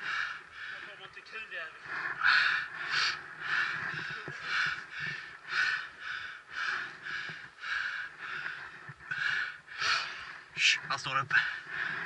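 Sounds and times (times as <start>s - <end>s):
person breathing hard and fast: 0.0s - 1.1s, 1.7s - 12.0s.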